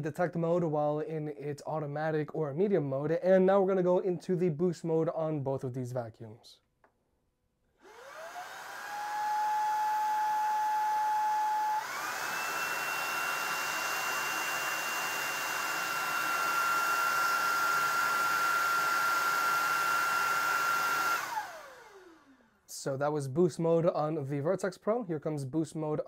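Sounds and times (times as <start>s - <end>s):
stick vacuum motor whining: 7.8s - 22.4s.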